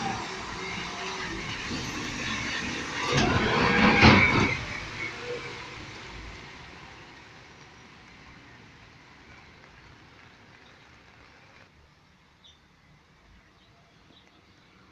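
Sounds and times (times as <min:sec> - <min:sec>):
garbage truck driving past: 0:00.0 - 0:09.8
tyres on wet pavement: 0:00.0 - 0:14.9.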